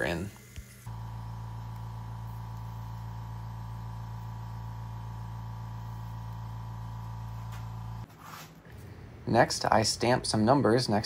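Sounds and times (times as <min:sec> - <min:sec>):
electric motor humming: 0:00.0 - 0:08.1.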